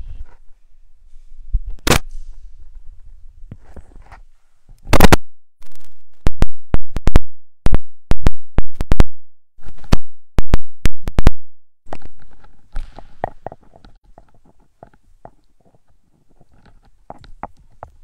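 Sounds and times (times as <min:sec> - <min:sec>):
microphone scraping rub: 0:00.0 - 0:04.8.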